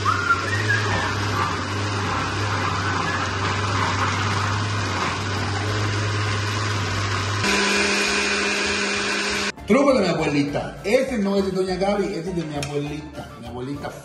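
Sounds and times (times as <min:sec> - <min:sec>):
blender motor running: 0:00.0 - 0:09.6.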